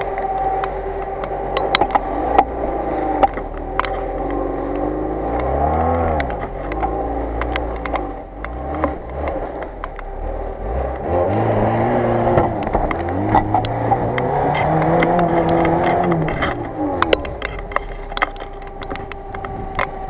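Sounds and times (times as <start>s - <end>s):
clicks and ticks: 0.0s - 10.2s, 10.8s - 20.0s
engine revving hard: 4.0s - 18.1s.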